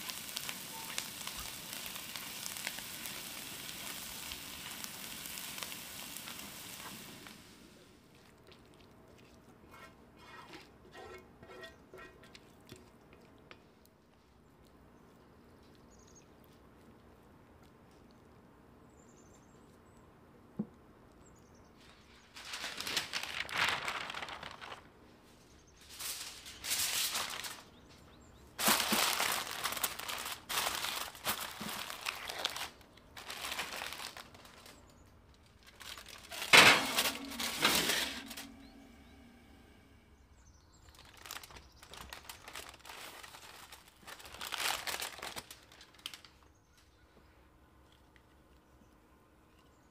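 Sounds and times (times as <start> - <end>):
aluminium foil crinkling: 0.0 - 10.4, 21.8 - 39.0, 40.7 - 46.6.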